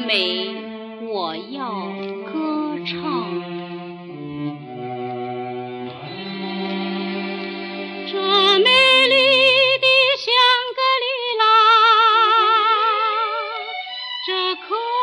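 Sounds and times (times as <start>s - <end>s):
sustained musical accompaniment: 0.0s - 15.0s
woman singing with vibrato: 8.1s - 13.6s, 14.2s - 15.0s.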